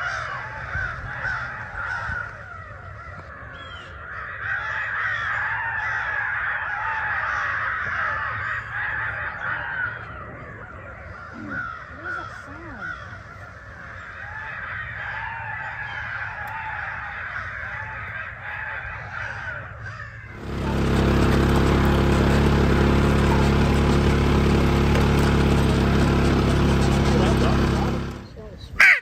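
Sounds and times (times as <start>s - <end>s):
crows cawing: 0.0s - 29.0s
utility vehicle engine droning: 19.5s - 28.6s.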